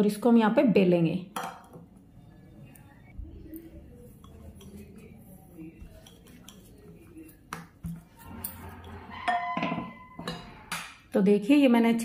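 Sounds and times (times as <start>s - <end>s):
rolling pin rolling dough: 3.4s - 10.2s.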